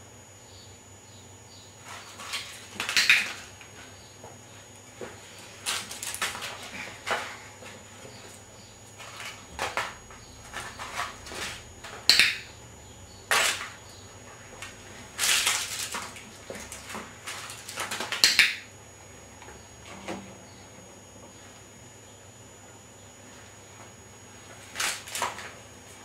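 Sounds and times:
paper rustling: 0:05.0 - 0:07.5, 0:15.1 - 0:18.2, 0:24.5 - 0:25.6.

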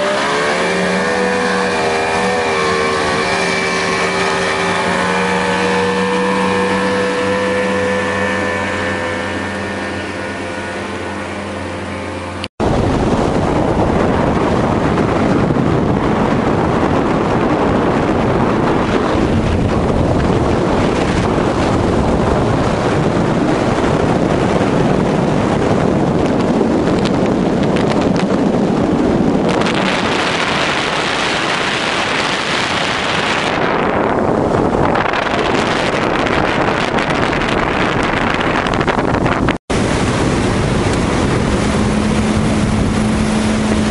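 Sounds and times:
wind noise on microphone: 0:00.0 - 0:43.9.

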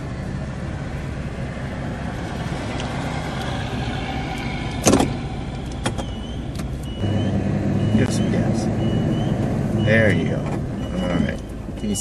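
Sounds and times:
backup alarm beep: 0:06.0 - 0:12.0.

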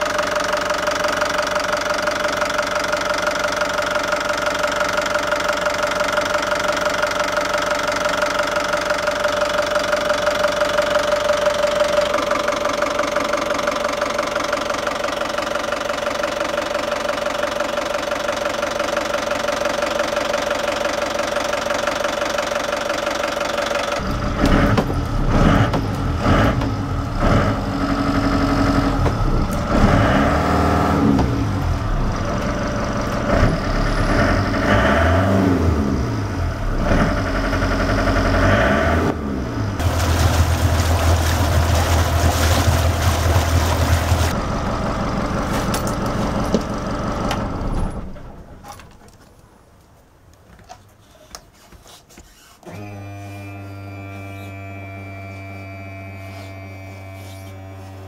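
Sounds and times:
boat engine idling: 0:00.0 - 0:34.4, 0:39.8 - 0:48.6.

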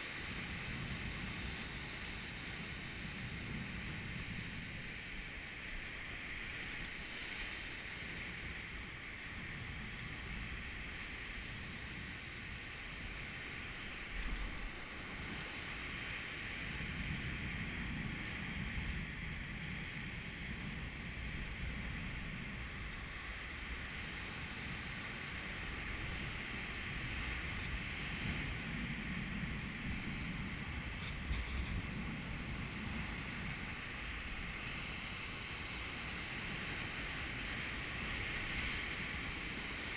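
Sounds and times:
sea surf washing over rocks: 0:00.0 - 0:39.9.

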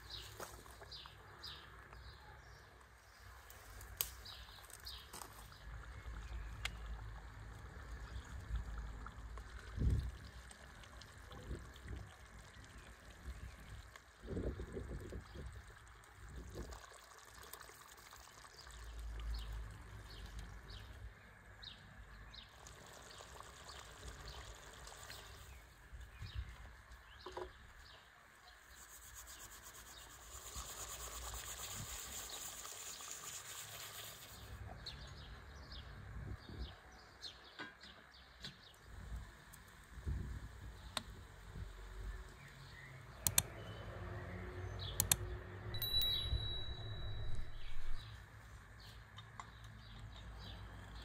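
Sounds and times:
small birds chirping: 0:41.9 - 0:51.0.

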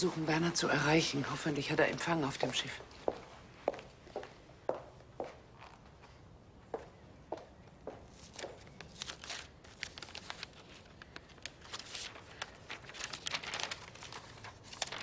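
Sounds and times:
paper rustling and crinkling: 0:08.1 - 0:15.0.

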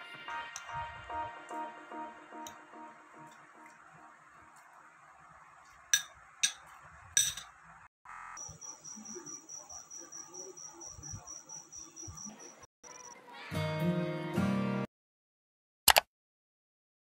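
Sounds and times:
metal fork clinking on glass plate: 0:06.0 - 0:07.5
high-pitched pulsing chirp: 0:08.4 - 0:13.2.

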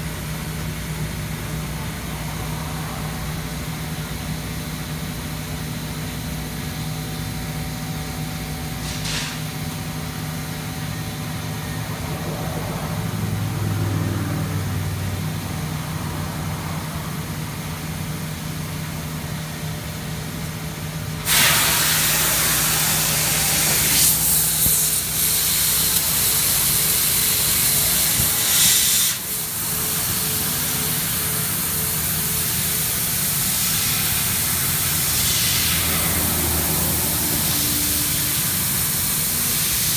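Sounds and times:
assist gas jet hissing: 0:08.8 - 0:09.5, 0:21.2 - 0:39.9
laser cutting machine humming: 0:21.2 - 0:39.9.

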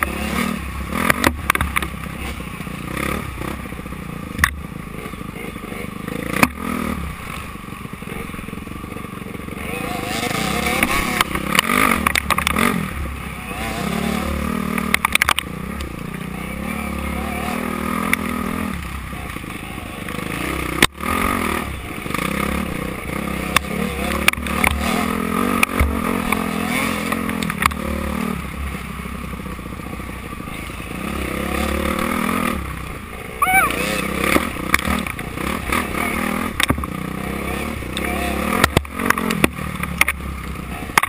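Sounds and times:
bike clattering over rough trail: 0:00.0 - 0:30.9, 0:33.7 - 0:41.0
dirt bike engine revving: 0:00.0 - 0:41.0.

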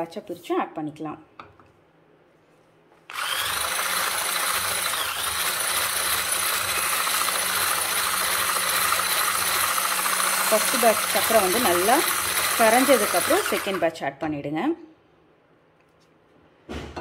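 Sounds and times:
electric hand blender whining: 0:03.1 - 0:13.9.

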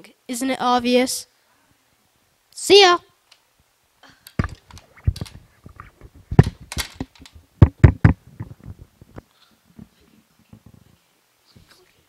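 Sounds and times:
microphone handling knocks: 0:04.4 - 0:09.2.

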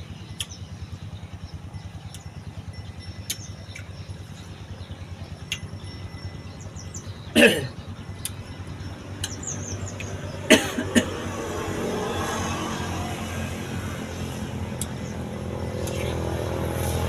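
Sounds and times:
man coughing: 0:07.3 - 0:07.8, 0:10.5 - 0:11.2.

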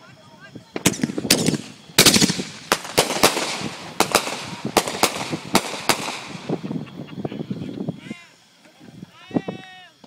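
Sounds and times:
fireworks crackling: 0:00.0 - 0:10.0
fireworks cracking and popping: 0:00.6 - 0:08.1.

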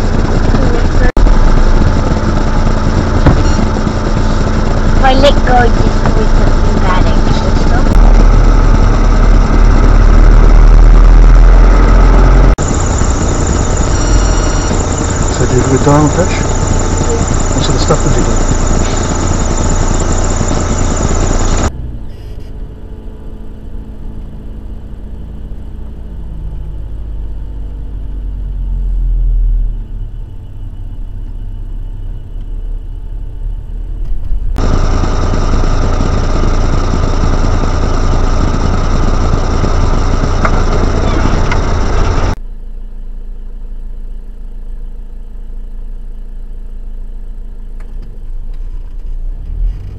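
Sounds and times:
car engine: 0:00.0 - 0:49.9
road noise inside car: 0:00.0 - 0:49.9.

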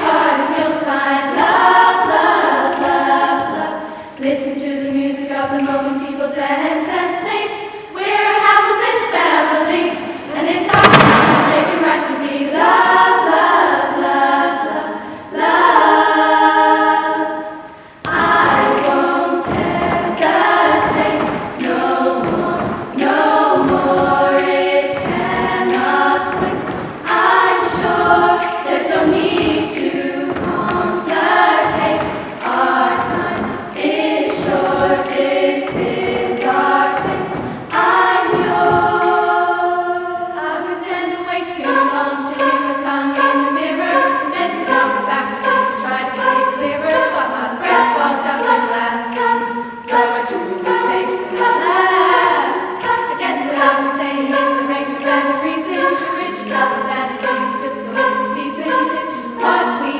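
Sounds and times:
girls' choir singing a cappella: 0:00.0 - 0:59.9.

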